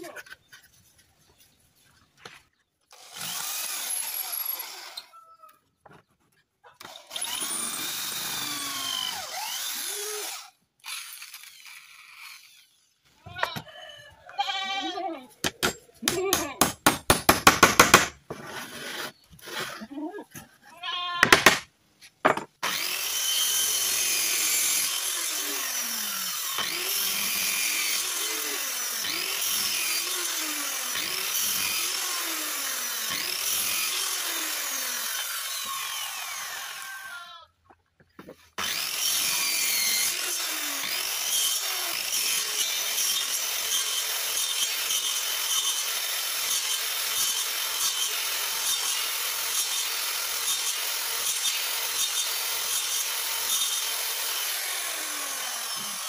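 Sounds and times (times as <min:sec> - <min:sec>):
circular saw cutting wood: 0:02.8 - 0:05.2, 0:06.8 - 0:13.0, 0:18.3 - 0:19.8, 0:22.6 - 0:37.2, 0:38.2 - 0:56.0.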